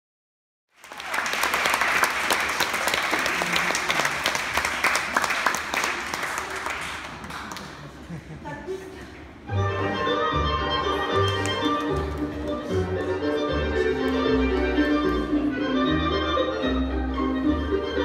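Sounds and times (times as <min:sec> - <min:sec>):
audience applauding: 0:00.8 - 0:08.0.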